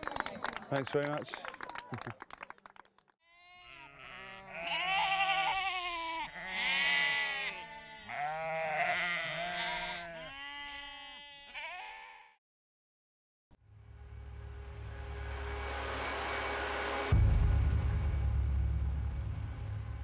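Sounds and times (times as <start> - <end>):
sheep bleating: 3.3 - 12.4.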